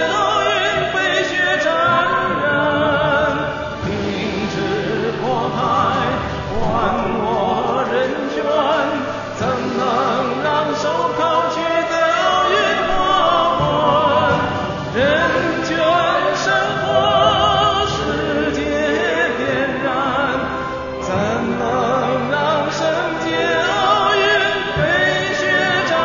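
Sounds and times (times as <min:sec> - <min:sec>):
operatic singing: 0:00.0 - 0:26.0.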